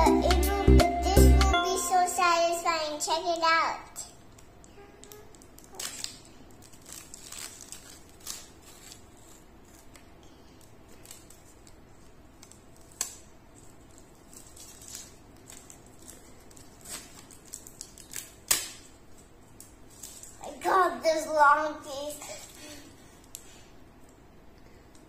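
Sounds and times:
tape peeling with crackles: 4.2s - 20.4s.

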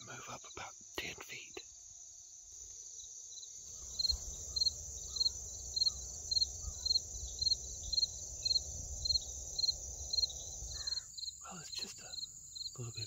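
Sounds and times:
cricket-like chirp: 0.0s - 13.0s
insect high drone: 0.0s - 13.0s.

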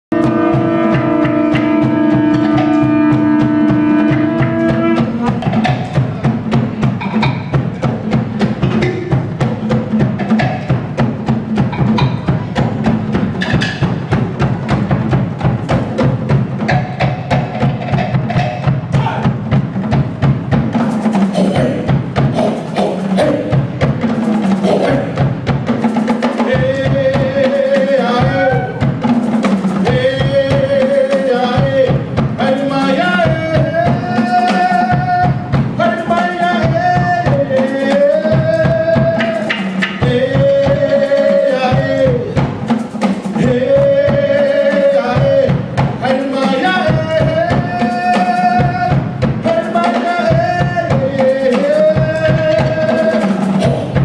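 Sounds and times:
fast drumming: 0.0s - 54.0s
conch shell blown: 0.1s - 5.5s.

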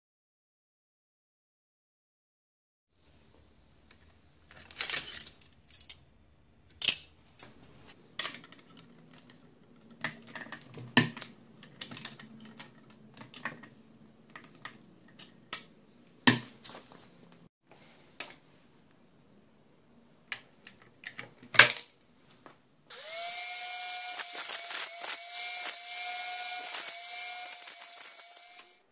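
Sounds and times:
angle grinder grinding steel: 22.9s - 28.9s.

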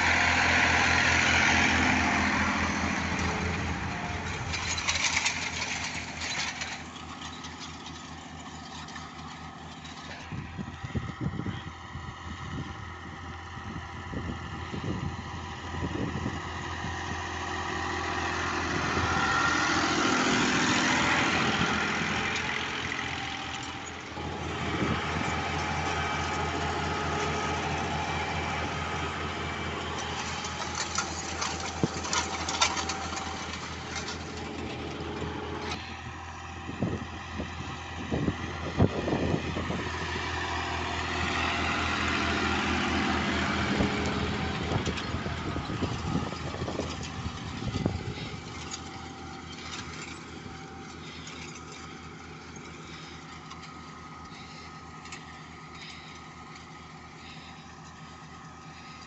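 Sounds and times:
seed drill rattling: 0.0s - 11.0s, 16.8s - 36.1s, 40.6s - 59.0s
tractor engine running: 0.0s - 59.0s
metallic clatters and knocks: 3.0s - 10.4s, 29.9s - 35.9s, 44.7s - 58.0s.

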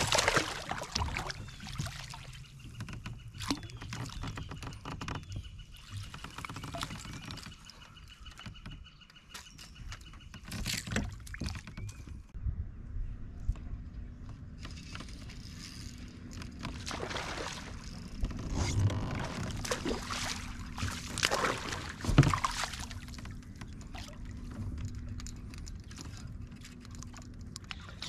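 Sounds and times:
fish splashing in water: 0.0s - 2.3s, 16.9s - 17.8s, 19.6s - 23.0s.

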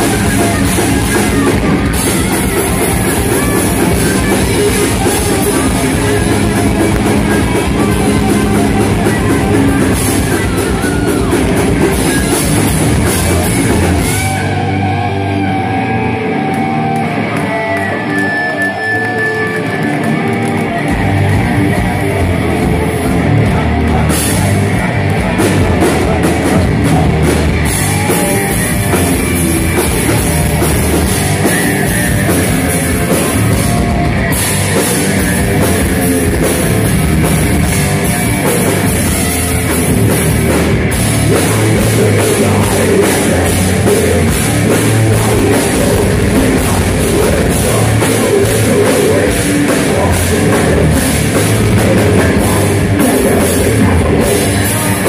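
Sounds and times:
heavy metal music: 0.0s - 55.0s.

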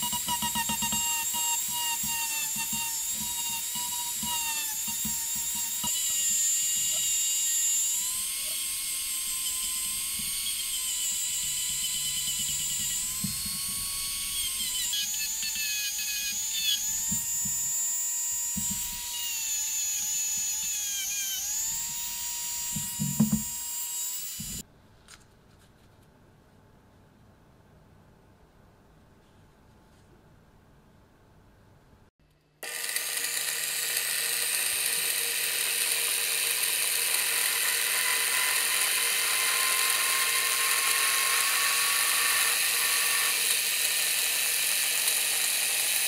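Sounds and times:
rotary tool whining: 0.0s - 24.6s, 32.6s - 46.0s
knocks: 22.7s - 23.5s.

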